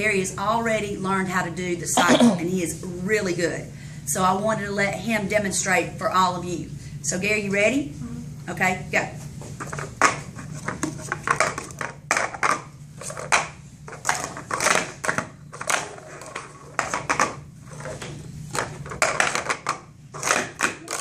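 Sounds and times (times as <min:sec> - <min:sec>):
plastic cups clacking on table: 0:09.6 - 0:21.0.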